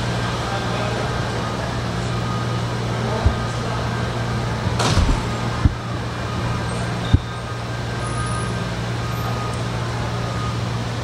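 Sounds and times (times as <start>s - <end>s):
faint steady tones: 0.0s - 11.0s
brief low thumps: 3.2s - 3.7s, 4.7s - 6.0s, 7.1s - 7.4s.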